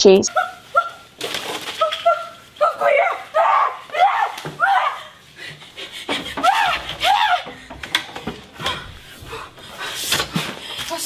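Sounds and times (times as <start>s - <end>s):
young man screaming: 1.9s - 5.2s, 6.4s - 7.5s.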